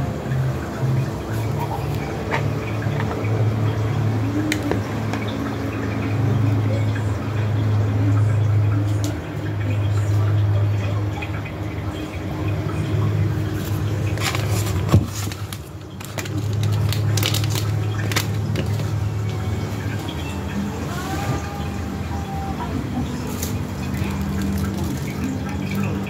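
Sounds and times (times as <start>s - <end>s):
plastic packet crackling: 13.5s - 20.1s, 23.2s - 26.0s.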